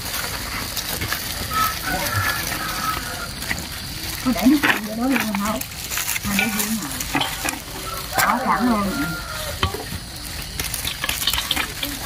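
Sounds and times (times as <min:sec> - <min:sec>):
plastic bags and foam boxes crinkling: 0:00.0 - 0:12.0.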